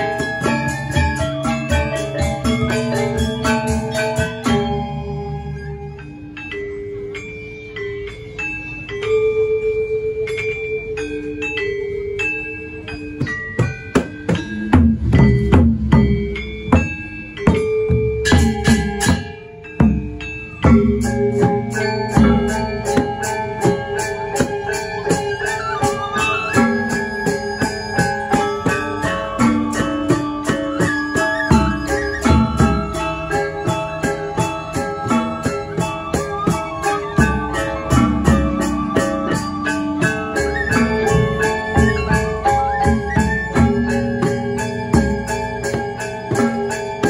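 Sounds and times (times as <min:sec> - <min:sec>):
wavering flute melody: 0:00.0 - 0:08.8, 0:18.2 - 0:47.0
metallophones struck: 0:12.6 - 0:47.0.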